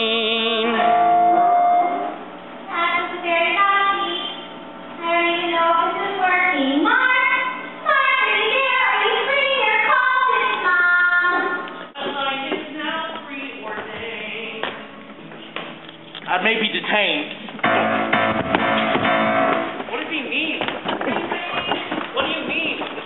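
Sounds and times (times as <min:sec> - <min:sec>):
steady held tone: 0:00.0 - 0:04.2
woman singing: 0:02.7 - 0:04.4, 0:05.0 - 0:14.9.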